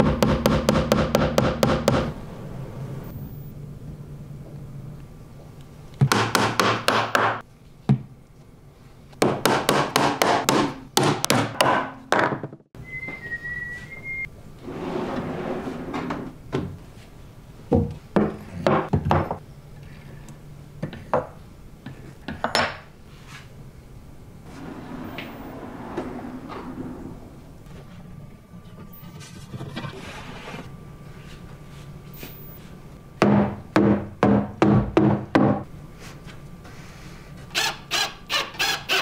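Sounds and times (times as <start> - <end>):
drawers sliding on metal runners: 14.6 - 16.3, 24.5 - 27.5.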